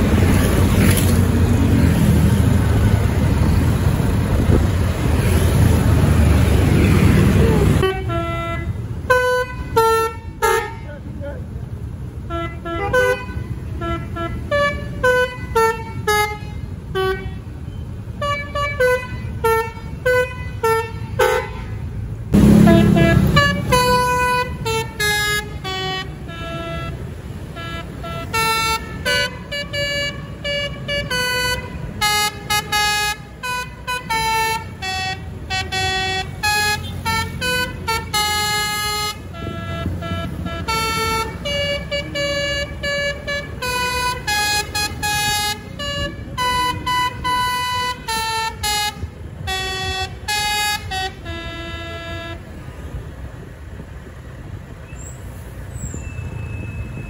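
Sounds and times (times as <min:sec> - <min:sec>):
traffic and motorbikes rumble: 0:00.0 - 0:57.0
bus horn tooting a tune: 0:07.6 - 0:11.0, 0:12.2 - 0:52.6
deep horn blast: 0:22.4 - 0:24.5.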